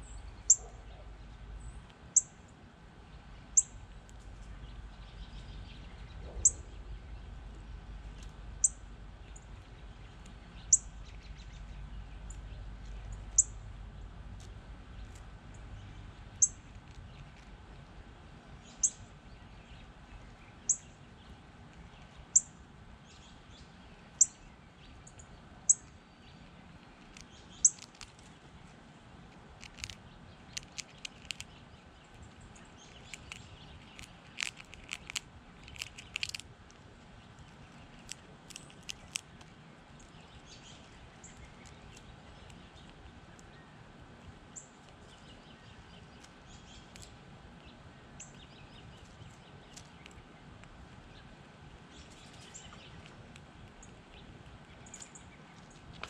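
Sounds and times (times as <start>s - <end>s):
bird high chirp: 0.0s - 2.3s, 3.5s - 3.8s, 4.5s - 7.3s, 8.6s - 13.6s, 18.6s - 21.4s.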